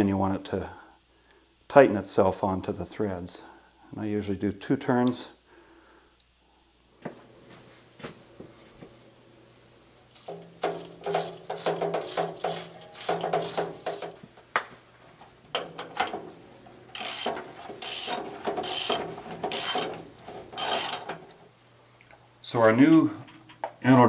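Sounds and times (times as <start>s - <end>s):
socket ratchet clicking: 10.6s - 14.2s, 16.9s - 20.0s, 20.6s - 21.2s.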